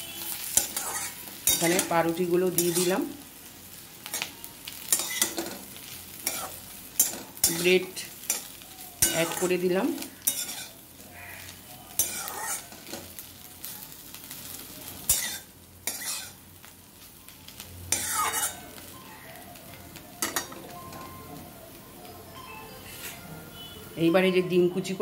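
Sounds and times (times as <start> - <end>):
stir-fry sizzling: 0.0 - 25.0
metal spatula scraping pan: 0.4 - 2.0, 6.2 - 10.8, 12.0 - 13.1, 15.1 - 16.4, 17.9 - 18.6.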